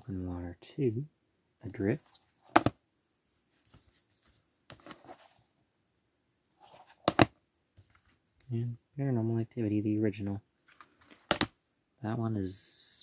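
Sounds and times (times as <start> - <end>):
plastic cases clacking: 7.0 - 7.3, 10.7 - 11.5.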